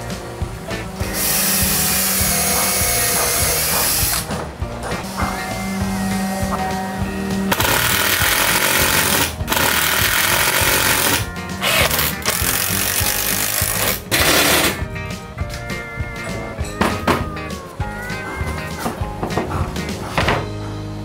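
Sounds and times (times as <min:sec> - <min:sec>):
background music: 0:00.0 - 0:21.0
cordless drill boring into wood: 0:07.5 - 0:14.8.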